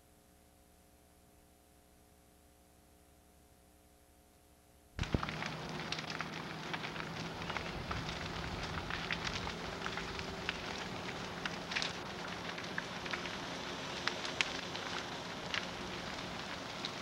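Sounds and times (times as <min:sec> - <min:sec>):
burning timber crackling and popping: 0:05.0 - 0:17.0.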